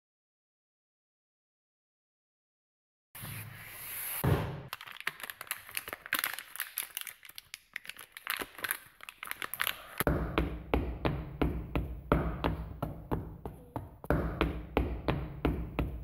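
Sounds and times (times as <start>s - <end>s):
crinkling crackling clicks: 4.7s - 10.1s.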